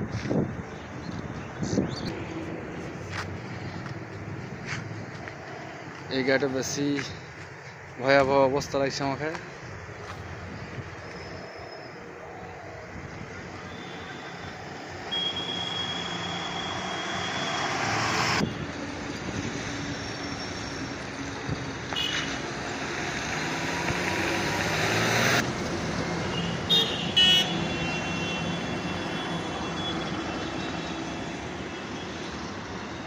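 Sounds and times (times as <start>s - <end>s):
road traffic: 0.0s - 33.0s
car horn toots: 15.1s - 17.7s, 22.0s - 22.4s, 26.4s - 30.1s.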